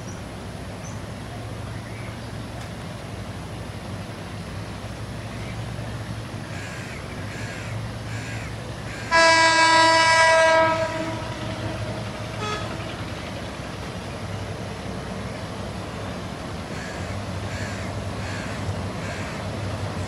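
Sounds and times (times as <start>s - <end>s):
train rumbling: 0.0s - 20.0s
locomotive horn blast: 9.0s - 13.3s.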